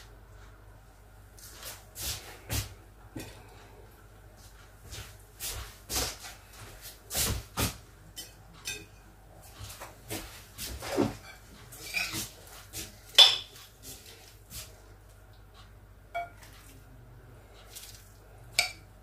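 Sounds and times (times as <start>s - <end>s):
dishes and utensils clattering: 8.1s - 12.4s, 13.2s - 13.6s, 16.2s - 16.7s.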